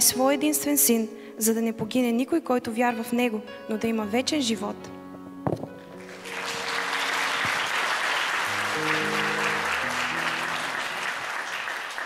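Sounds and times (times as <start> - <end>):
quiet background music: 0.0 - 11.5
audience applauding: 6.0 - 12.0.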